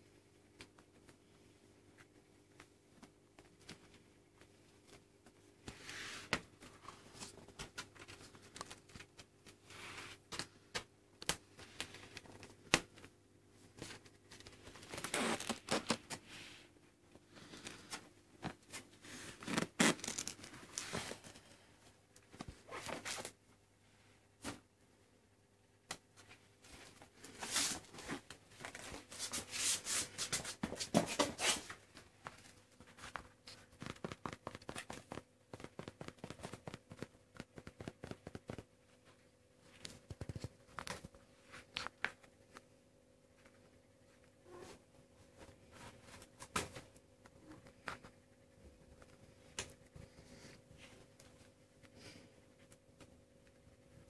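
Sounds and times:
scratching and rustling: 26.1 - 42.6.

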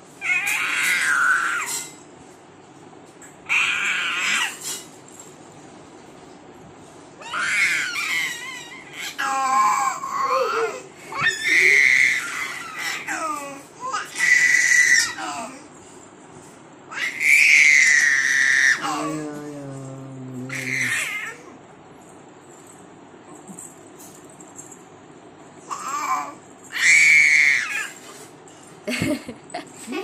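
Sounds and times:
baby squealing: 0.2 - 1.9, 7.2 - 13.3, 13.9 - 15.5, 16.9 - 19.2, 20.4 - 21.5, 25.7 - 28.0.

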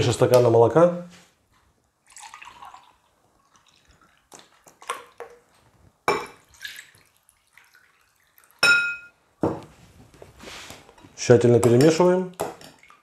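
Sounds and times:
milk pouring and dripping: 1.7 - 8.7
glass and spoon knocks: 8.6 - 9.6.

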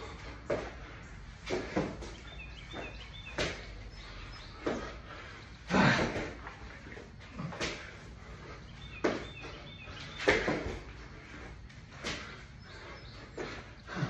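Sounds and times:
faint bird chirping: 0.0 - 6.0, 6.6 - 14.0
man breathing hard: 4.5 - 8.9, 10.9 - 14.0.

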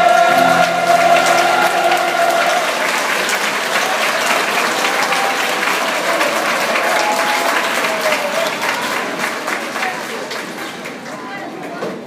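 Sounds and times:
choir holding a note: 0.0 - 4.2
large audience applauding: 0.0 - 11.3.

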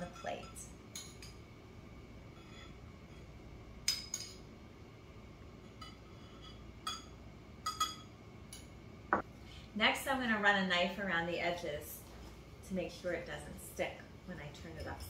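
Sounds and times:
metal spoon clinking on glass bowl: 5.8 - 8.7.

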